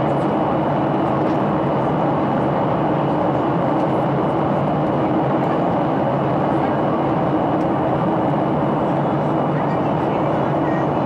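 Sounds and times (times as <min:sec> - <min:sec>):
jet engine and rushing air: 0:00.0 - 0:11.0.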